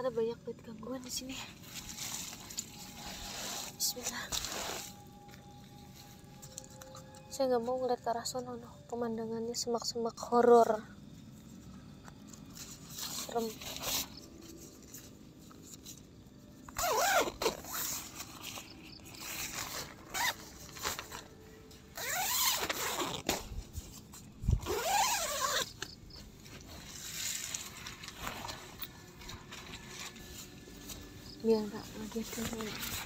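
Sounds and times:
zipper rasping: 16.7s - 21.0s, 22.0s - 23.5s, 24.5s - 25.8s.

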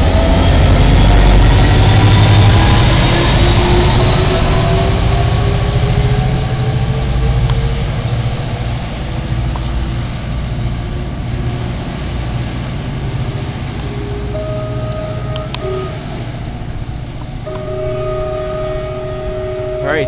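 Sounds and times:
diesel locomotive engine hum: 0.0s - 20.0s
faint rising tone: 10.5s - 20.0s.

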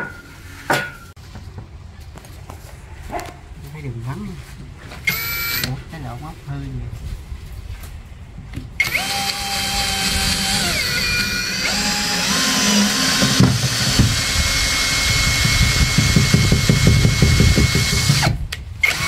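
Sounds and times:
power drill whining into wood: 5.1s - 5.7s, 8.8s - 19.0s.

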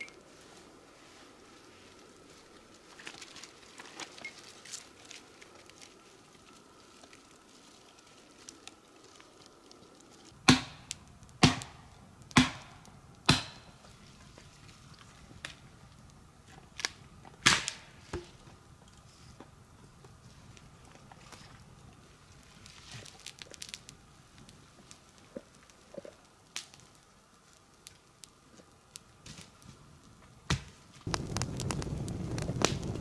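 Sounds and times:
small fire crackling: 0.0s - 33.0s
dry twigs snapping: 1.9s - 13.7s, 16.5s - 17.9s, 22.6s - 29.7s, 30.5s - 33.0s.

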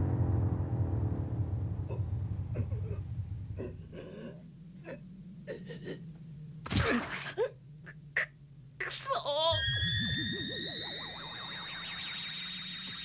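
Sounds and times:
low explosion rumble: 0.0s - 4.8s.

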